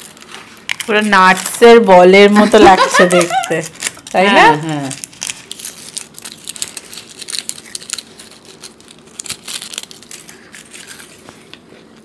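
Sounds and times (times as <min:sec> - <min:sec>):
foil wrapper crinkling: 0:00.0 - 0:12.0
crunching bites: 0:05.0 - 0:11.2.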